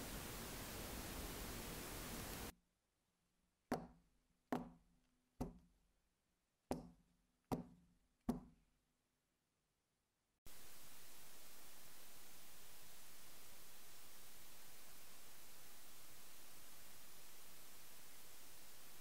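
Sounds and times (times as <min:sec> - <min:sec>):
steady hiss: 0:00.0 - 0:02.5, 0:10.5 - 0:19.0.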